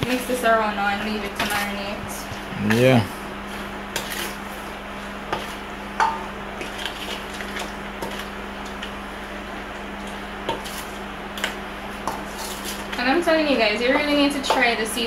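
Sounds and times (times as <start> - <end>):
food tapping in a metal bowl: 13.9 - 14.8.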